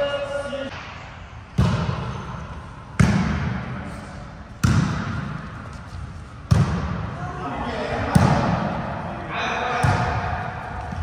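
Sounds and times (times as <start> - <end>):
volleyball smacks echoing: 1.5 - 3.8, 4.5 - 5.5, 6.4 - 7.1, 8.0 - 8.8, 9.7 - 11.0.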